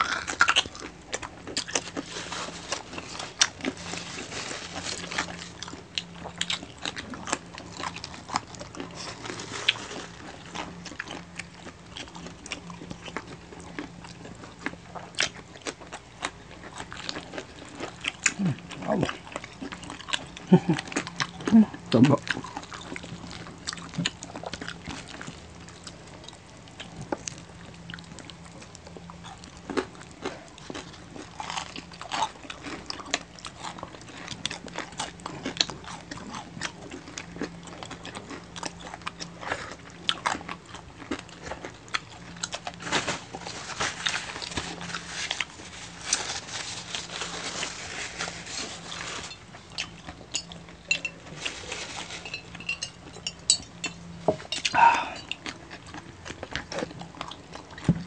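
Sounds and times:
chewing and mouth smacks: 0.0s - 46.2s, 48.7s - 58.0s
crunching crispy skin: 0.0s - 57.9s.

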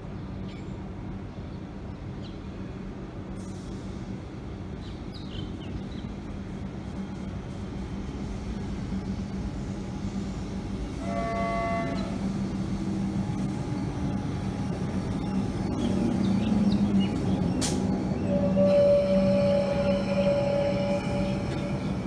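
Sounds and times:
electric train hum and rumble: 0.0s - 22.0s
train horn toot: 11.0s - 12.3s, 18.2s - 22.0s.

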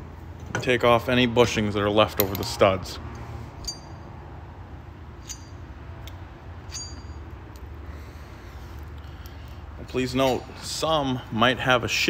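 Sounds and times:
steady low hum: 0.0s - 12.0s
light metal clinks: 3.6s - 4.1s, 5.2s - 7.8s.

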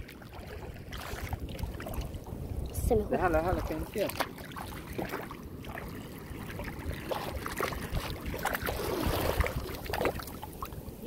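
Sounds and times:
water sloshing around wading person: 0.0s - 11.0s
wind rumble on microphone: 0.0s - 11.0s.

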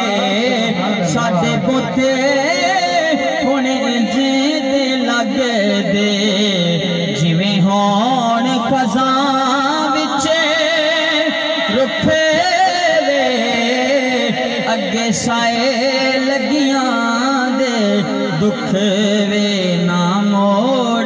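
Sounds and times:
man singing through loudspeaker: 0.0s - 21.0s.

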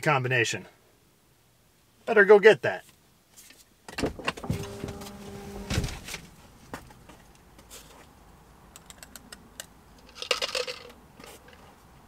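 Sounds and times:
rustles: 2.8s - 8.2s.

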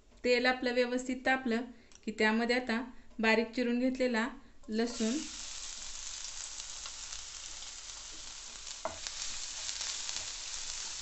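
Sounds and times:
garlic sizzling in oil: 4.8s - 11.0s.

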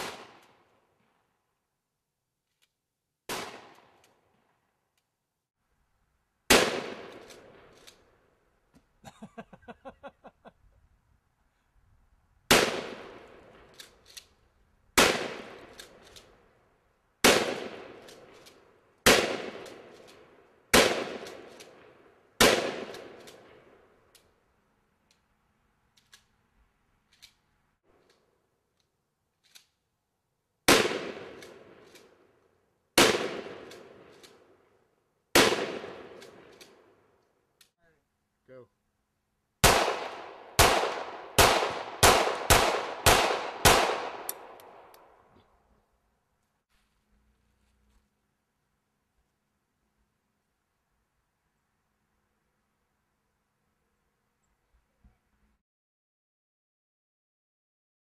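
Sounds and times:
echoing gunshots outdoors: 0.0s - 1.2s, 3.2s - 4.6s, 6.5s - 8.2s, 12.4s - 13.9s, 14.9s - 24.0s, 30.6s - 34.6s, 35.3s - 37.1s, 39.6s - 45.3s.

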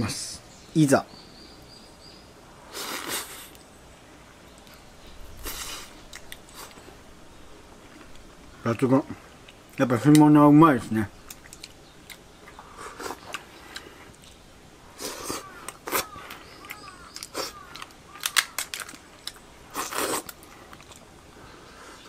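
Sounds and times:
sucking and chewing: 4.5s - 7.0s, 11.2s - 22.0s
crab shell crunching: 11.2s - 14.4s, 15.4s - 21.1s.

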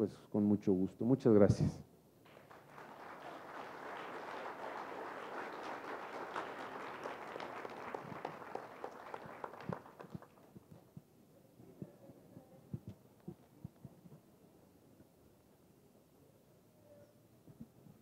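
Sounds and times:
audience applauding: 2.3s - 10.9s.

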